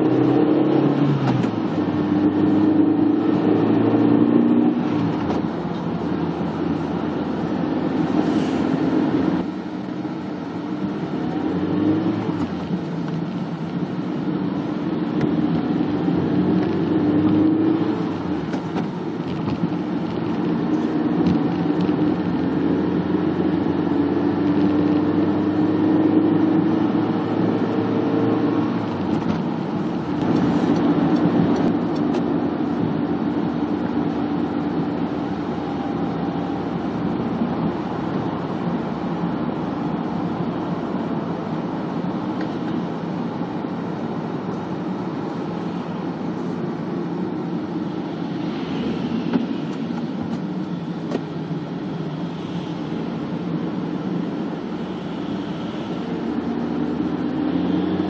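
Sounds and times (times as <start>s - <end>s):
car engine hum: 0.0s - 58.0s
road noise: 0.0s - 58.0s.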